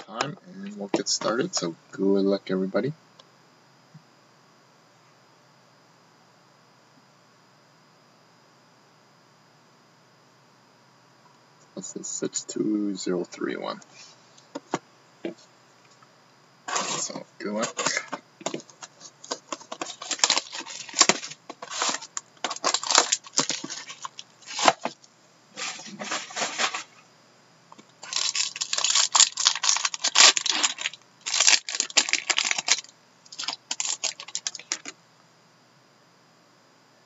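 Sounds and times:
plastic wrapping crinkling and tearing: 16.7s - 25.0s, 25.6s - 26.9s, 28.0s - 34.9s.

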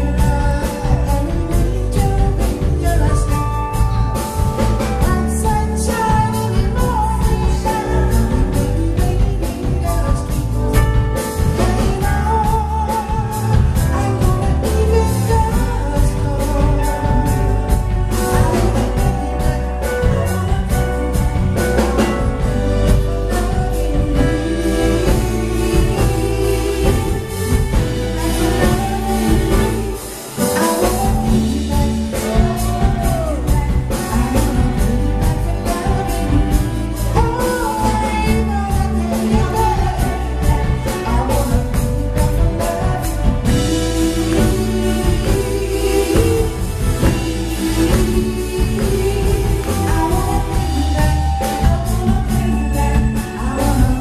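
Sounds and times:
lead vocal singing: 0.0s - 54.0s
soul blues band playing: 0.0s - 54.0s
backing singers: 11.3s - 54.0s.

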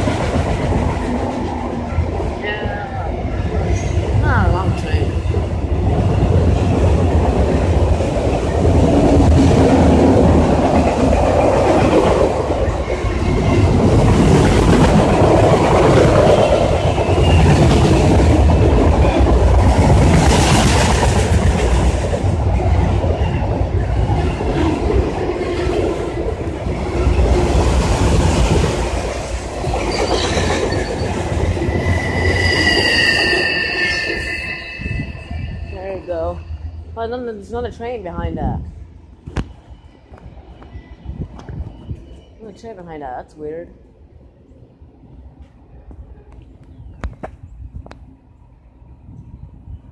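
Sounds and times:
train wheels rumbling on rails: 0.0s - 42.6s
high-pitched wheel squeal: 29.8s - 36.8s.

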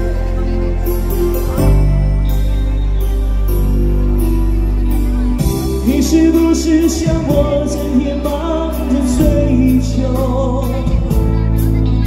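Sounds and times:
pop backing track with drum beat: 0.8s - 12.0s
man singing into a microphone: 5.8s - 11.7s.

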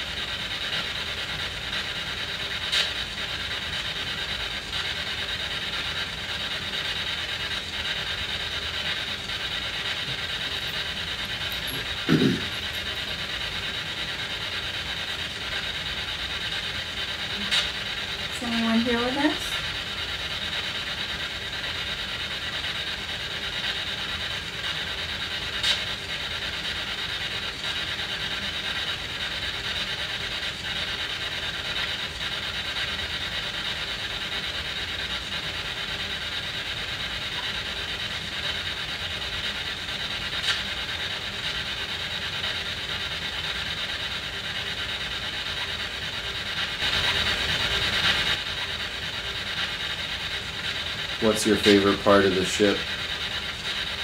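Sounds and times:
radio static: 11.6s - 12.6s.

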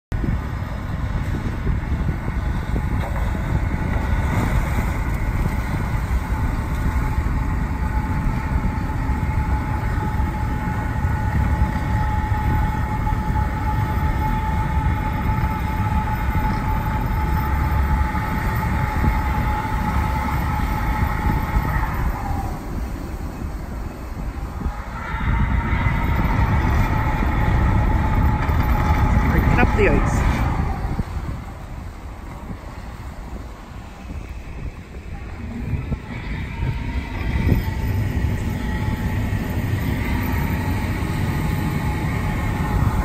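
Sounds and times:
engine and grinding ice rumble: 0.1s - 43.0s
high squeal: 7.0s - 23.4s, 24.4s - 31.7s.

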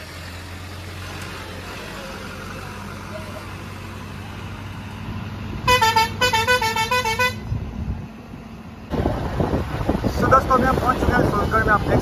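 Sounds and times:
low engine hum: 0.0s - 12.0s
musical vehicle horn: 5.7s - 7.5s
wind rumbling on microphone: 8.9s - 12.0s.

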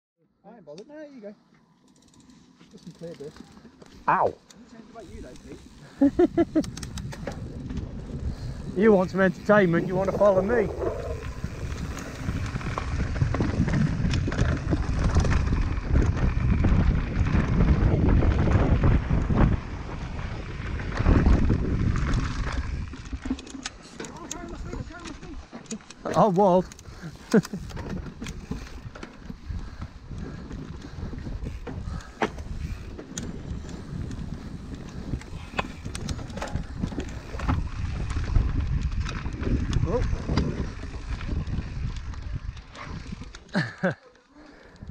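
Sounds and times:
bike knocking and rattling: 1.6s - 4.0s, 4.7s - 44.0s
wind buffeting microphone: 5.0s - 25.5s, 26.3s - 43.7s
tyres rumbling on dirt: 7.4s - 26.7s.

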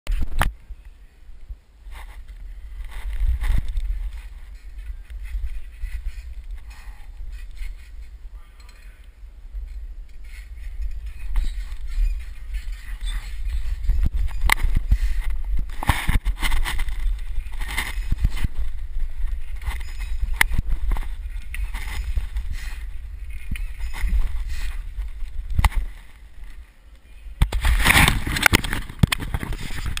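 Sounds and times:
wind rushing over microphone: 0.1s - 30.0s
camera handling scraping: 10.1s - 26.6s.

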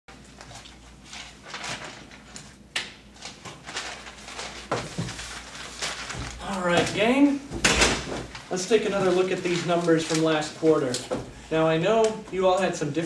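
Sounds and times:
paper rustling: 0.1s - 11.2s.

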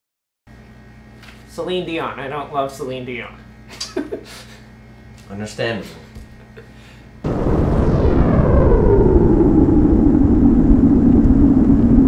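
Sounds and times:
steady low drone: 6.8s - 12.0s
rumbling whoosh falling in pitch: 7.2s - 12.0s.

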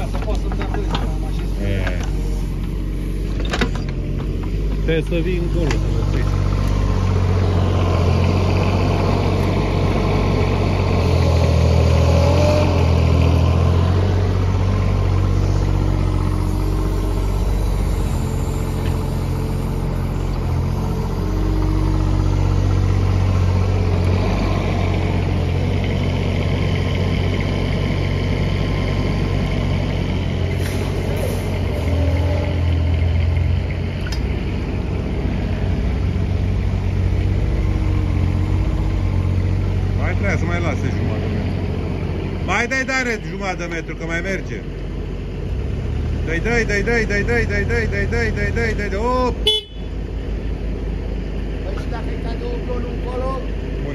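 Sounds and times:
diesel engines running: 0.0s - 53.9s.

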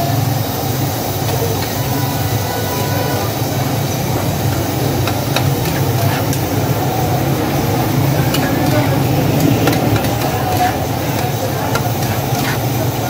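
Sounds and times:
gas burners rumbling: 0.0s - 13.0s
metal tongs clinking: 3.3s - 13.0s.

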